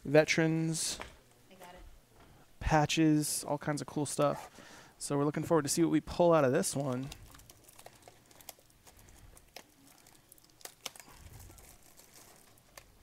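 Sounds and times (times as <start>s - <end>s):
plastic wrapper crinkling and tearing: 6.7s - 13.0s.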